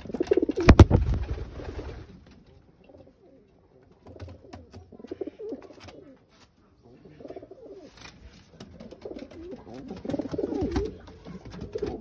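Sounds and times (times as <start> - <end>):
pigeons cooing: 0.0 - 1.8, 4.2 - 6.2, 7.0 - 8.0, 8.6 - 12.0.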